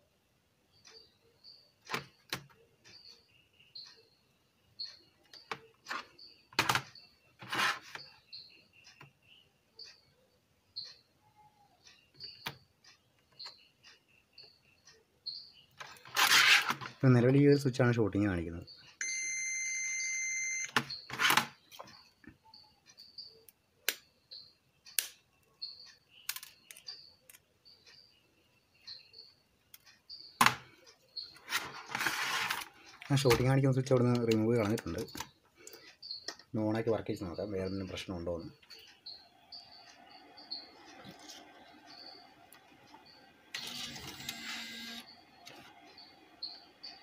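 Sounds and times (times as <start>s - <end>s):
circuit board rustling and scraping: 7.4s - 8.1s, 15.8s - 17.0s, 31.3s - 33.5s, 41.0s - 41.7s
multimeter continuity beep: 18.7s - 21.0s, 43.6s - 47.0s.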